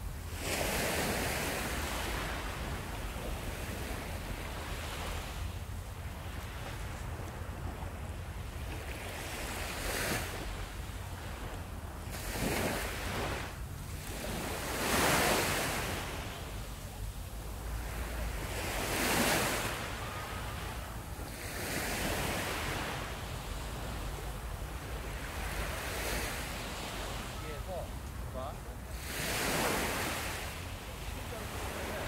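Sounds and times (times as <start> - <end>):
surf washing onto beach: 0.0 - 32.0.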